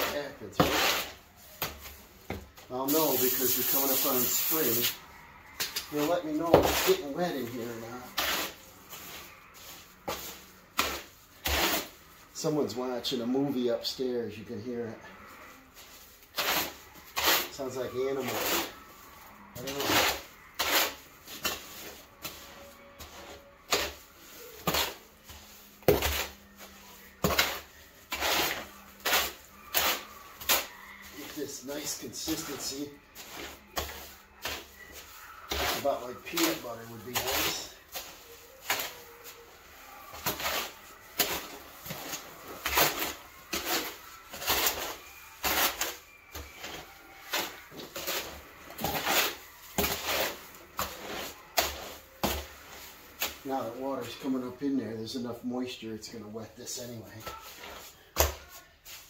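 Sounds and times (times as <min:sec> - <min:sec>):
tool scraping and slapping mortar: 0:00.0 - 0:05.0, 0:05.6 - 0:13.6, 0:15.7 - 0:55.2.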